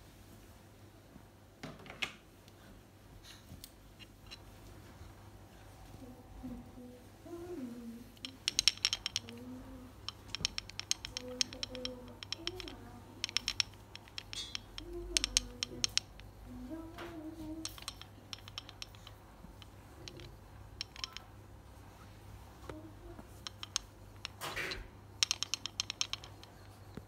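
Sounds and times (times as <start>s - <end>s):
wooden massager clattering clicks: 8.2s - 21.3s, 22.7s - 27.0s.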